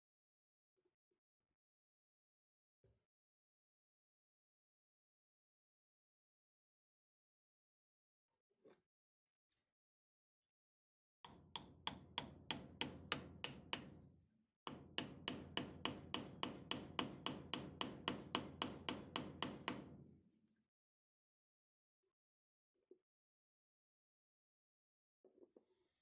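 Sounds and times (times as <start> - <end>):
hammer tapping wooden wedge: 11.3 - 14.0, 14.7 - 19.9.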